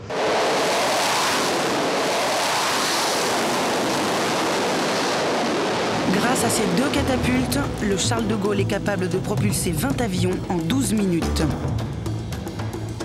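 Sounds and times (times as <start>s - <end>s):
jet engines at high power: 0.0s - 7.2s.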